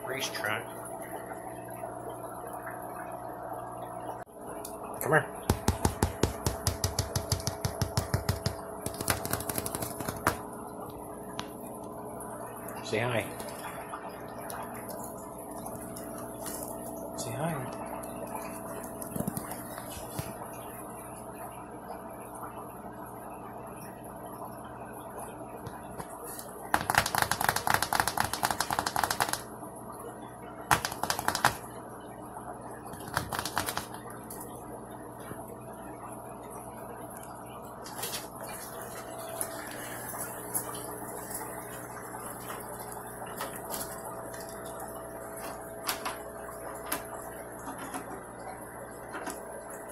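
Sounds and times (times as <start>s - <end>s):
faint steady hum: 0.0s - 49.9s
squirrel claws clicking on floor: 6.9s - 10.4s, 26.8s - 29.4s, 30.7s - 31.6s, 33.0s - 34.0s.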